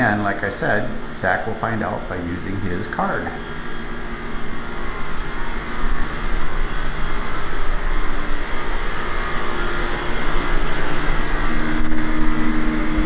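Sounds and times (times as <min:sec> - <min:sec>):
spray booth air rushing: 0:00.0 - 0:13.0.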